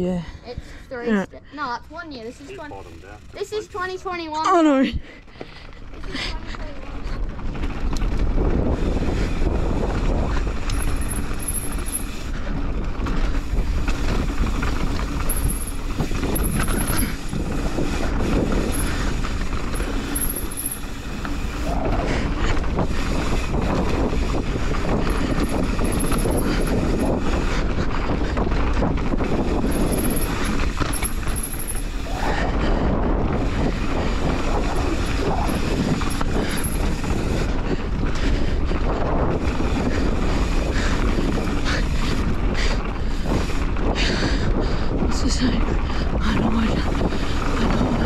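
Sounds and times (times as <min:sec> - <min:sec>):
bike rattling: 0:00.2 - 0:48.0
wind buffeting microphone: 0:00.2 - 0:48.0
bike tyres rumbling on dirt: 0:02.3 - 0:48.0.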